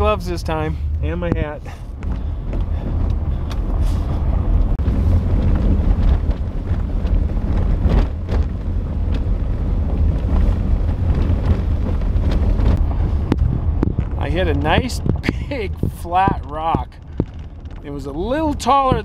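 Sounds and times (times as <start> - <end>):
tyres rumbling on dirt road: 0.0 - 19.0
stones knocking under car: 1.2 - 3.2, 10.9 - 19.0.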